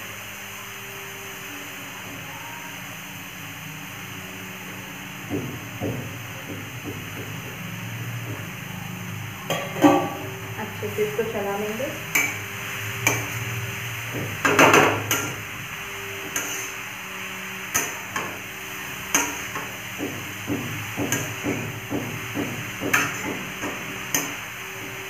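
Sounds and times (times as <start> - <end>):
vegetables sauteing in oil: 0.0 - 25.0
metal spatula scraping pan: 11.6 - 25.0.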